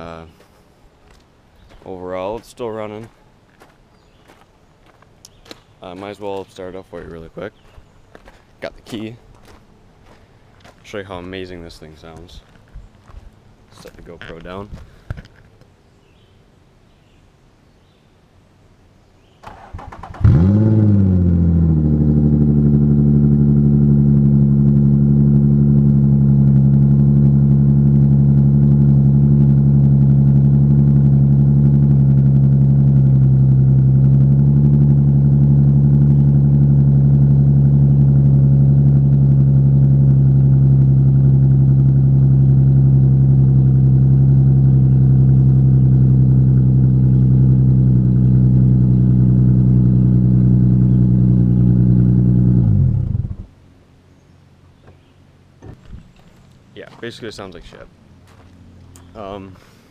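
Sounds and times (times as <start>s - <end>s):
car engine starting and idling: 19.4s - 53.6s.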